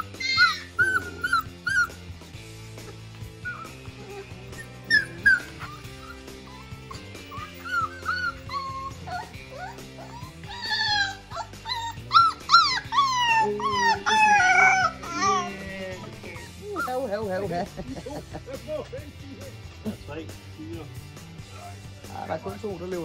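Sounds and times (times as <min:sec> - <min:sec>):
puppy yipping and howling: 0:00.0 - 0:02.0, 0:03.4 - 0:15.6, 0:16.2 - 0:17.1
background music: 0:00.0 - 0:23.0.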